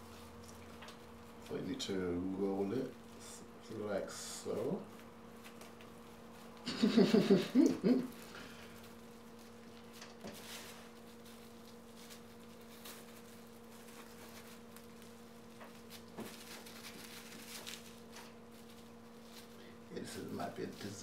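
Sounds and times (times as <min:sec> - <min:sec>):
steady low hum: 0:00.0 - 0:21.0
sushi mat rustling and tapping: 0:04.9 - 0:19.5.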